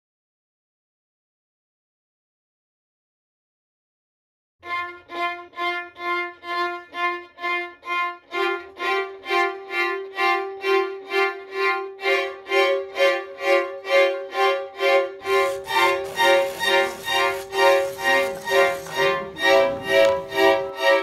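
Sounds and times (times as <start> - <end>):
violins playing short bowed notes: 14.8 - 21.0.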